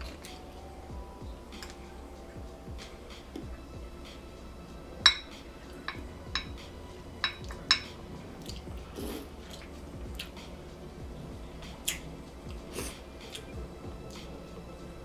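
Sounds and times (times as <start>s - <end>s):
shells clinking on glass bowl: 7.2s - 8.0s.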